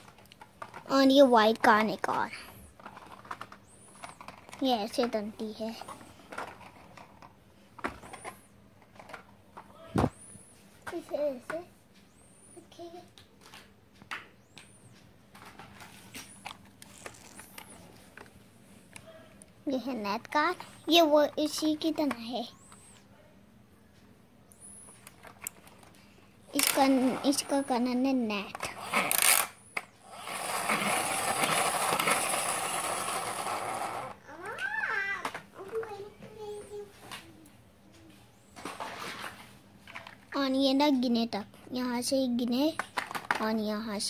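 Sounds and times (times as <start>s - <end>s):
toy cars knocking on blanket: 42.7s - 43.6s.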